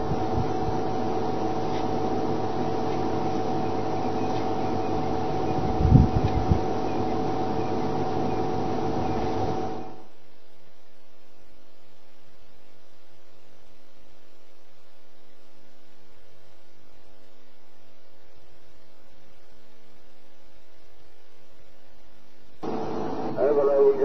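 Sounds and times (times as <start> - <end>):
electrical mains hum: 0.0 - 24.0.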